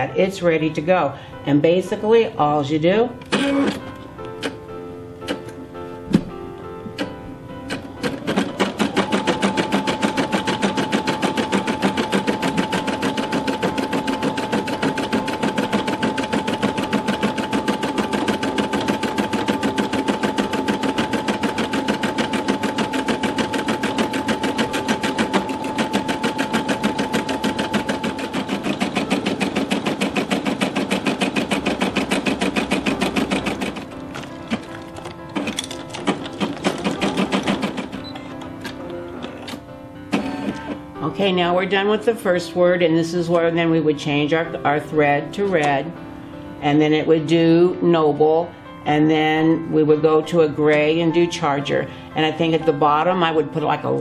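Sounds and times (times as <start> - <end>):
embroidery machine needle hammering: 6.9 - 40.9.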